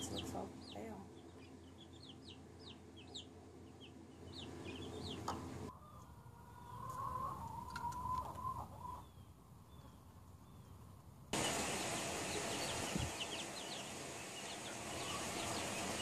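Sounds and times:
chicks peeping: 0.0 - 10.8, 11.4 - 16.0
adult chicken long call: 5.7 - 9.1.

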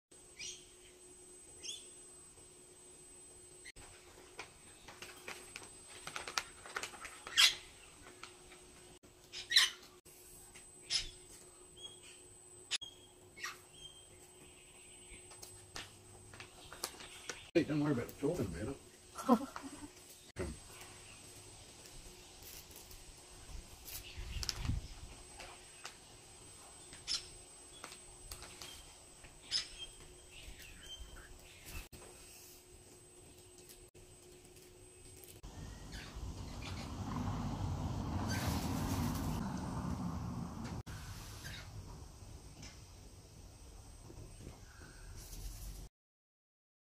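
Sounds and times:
low rumble: 35.5 - 40.9.

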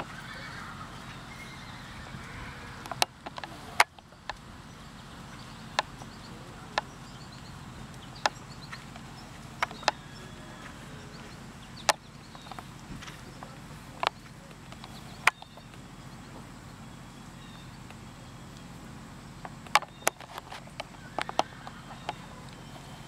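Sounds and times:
steady low hum: 0.0 - 23.0
sharp clicks: 2.8 - 4.5, 5.3 - 10.1, 11.7 - 15.9, 17.8 - 23.0.

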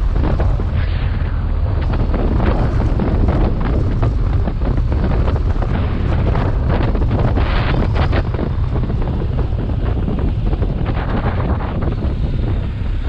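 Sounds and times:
motorcycle engine rumble: 0.0 - 13.0
wind buffeting microphone: 0.0 - 13.0.

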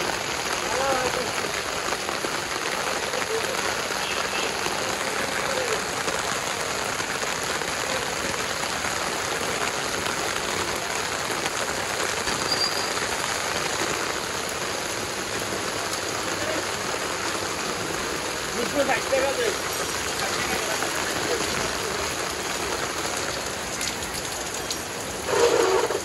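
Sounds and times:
heavy rain on pavement: 0.0 - 26.0.

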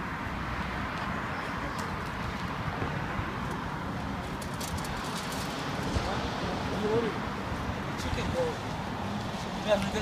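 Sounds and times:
shopping cart rolling on asphalt: 4.3 - 5.7.

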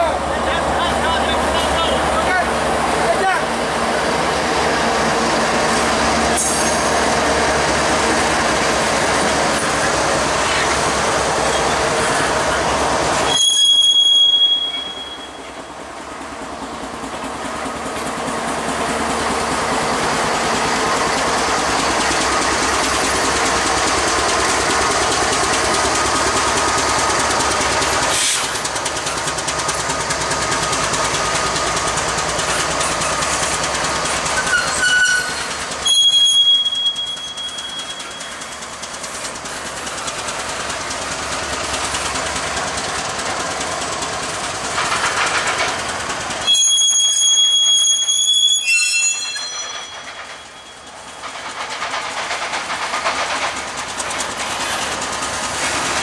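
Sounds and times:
diesel locomotives passing: 0.0 - 56.0
train wheel rumble and rail clatter: 0.0 - 56.0
high-pitched wheel squeal: 13.2 - 15.6, 34.4 - 38.5, 46.4 - 50.9.

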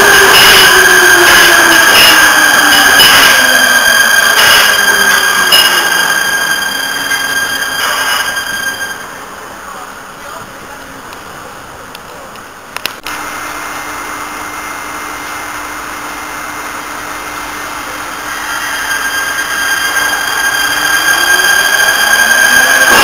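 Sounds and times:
electric train rushing: 0.0 - 11.5, 13.1 - 23.0
high steady whine: 0.0 - 23.0.

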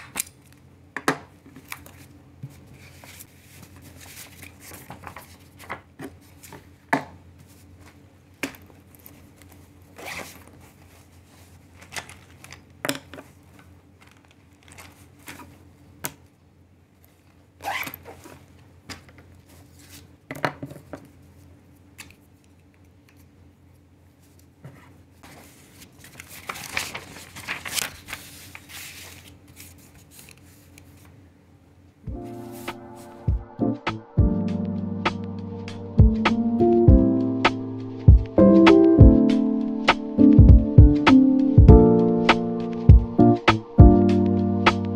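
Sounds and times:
paper sheets rustling: 1.4 - 6.8, 8.7 - 15.7, 24.2 - 31.2, 32.2 - 33.3.

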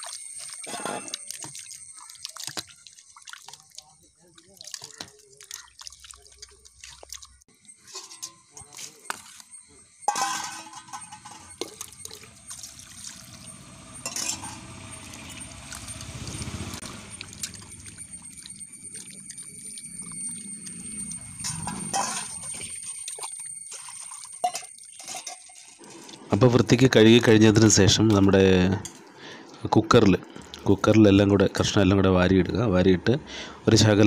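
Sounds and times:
metal clinking against bowl: 0.0 - 2.6, 7.7 - 16.2, 16.9 - 26.0
water sloshing in a bowl: 0.0 - 31.6.

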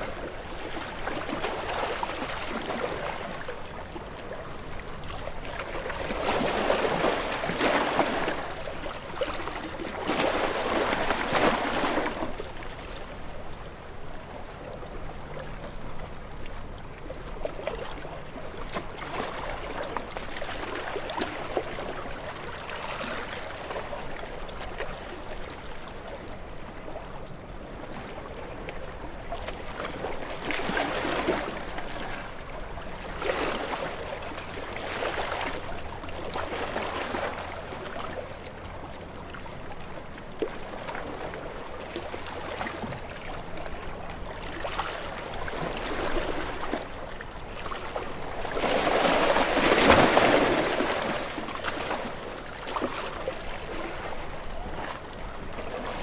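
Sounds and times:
small waves washing onto shore: 0.0 - 14.6, 16.2 - 56.0.

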